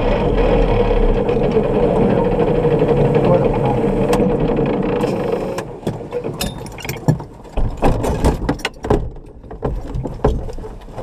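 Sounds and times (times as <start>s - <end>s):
buggy engine cutting out: 0.0s - 6.3s
knocks and clatter in cockpit: 0.0s - 11.0s.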